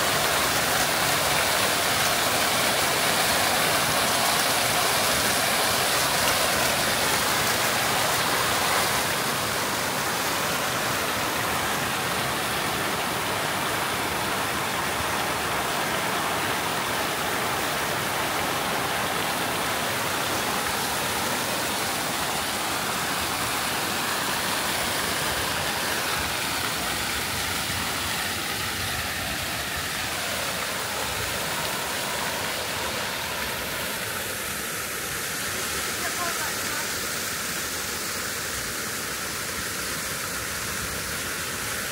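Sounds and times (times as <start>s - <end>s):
fountain water splashing: 0.0s - 41.9s.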